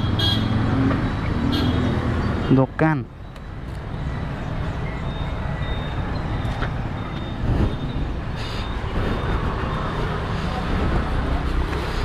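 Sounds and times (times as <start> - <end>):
traffic engine rumble: 0.0 - 12.0.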